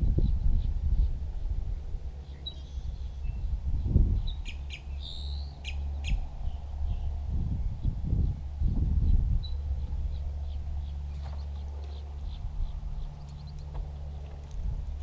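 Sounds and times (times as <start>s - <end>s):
low steady rumble: 0.0s - 15.0s
birds chirping: 0.2s - 15.0s
drawn-out bird call: 4.2s - 7.1s, 9.4s - 15.0s.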